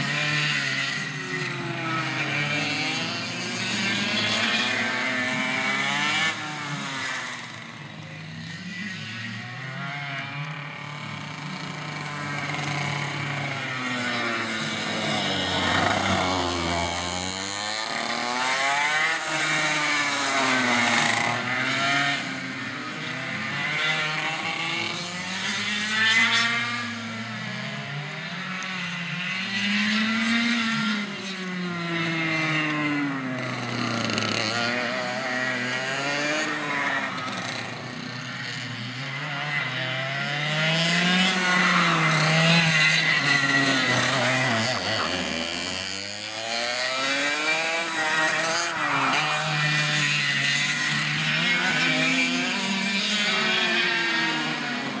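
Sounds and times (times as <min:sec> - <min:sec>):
go-kart engines revving: 0:00.0 - 0:55.0.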